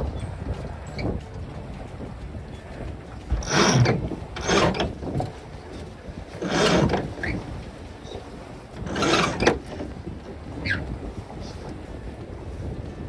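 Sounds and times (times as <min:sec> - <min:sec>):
sheet winch ratcheting: 0:03.3 - 0:05.3, 0:06.3 - 0:07.3, 0:08.8 - 0:09.8.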